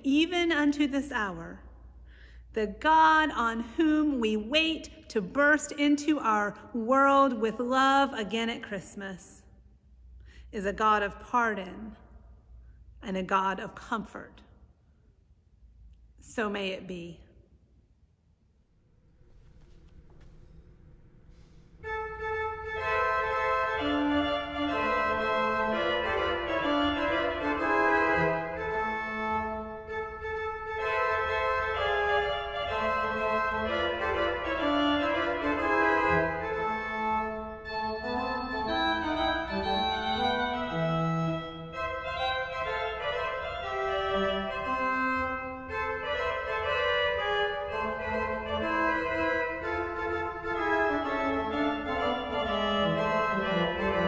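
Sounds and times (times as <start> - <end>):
organ chords with melody: 19.4 - 54.0.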